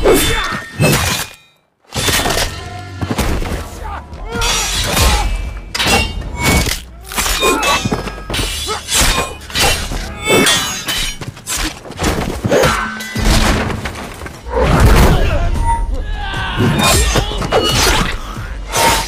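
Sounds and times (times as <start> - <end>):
steel blades clashing: 4.3 - 11.9, 16.6 - 19.0.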